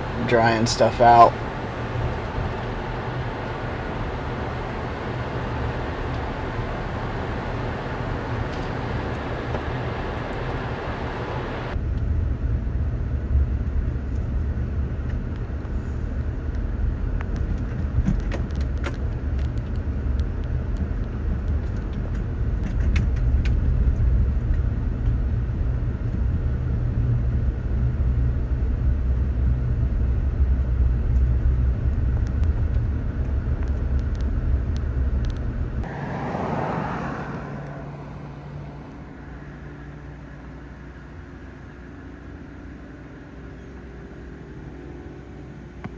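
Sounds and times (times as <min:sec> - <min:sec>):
wash of higher noise: 0:00.0 - 0:11.8, 0:35.8 - 0:41.3
car road and engine rumble: 0:00.0 - 0:45.9.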